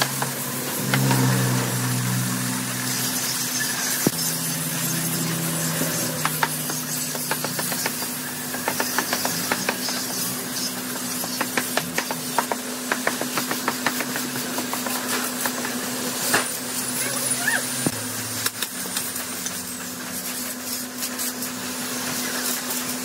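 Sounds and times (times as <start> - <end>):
angle grinder sanding wood: 0.0 - 18.1.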